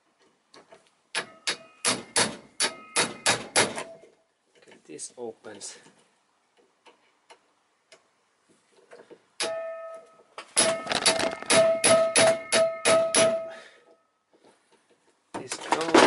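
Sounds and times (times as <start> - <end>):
hammer striking impact driver: 1.1 - 3.9, 10.6 - 13.5.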